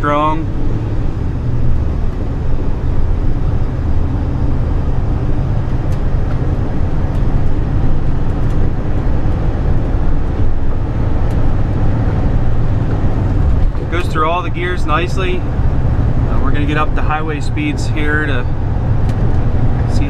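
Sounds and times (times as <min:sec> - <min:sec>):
truck cab engine and road rumble: 0:00.0 - 0:20.0.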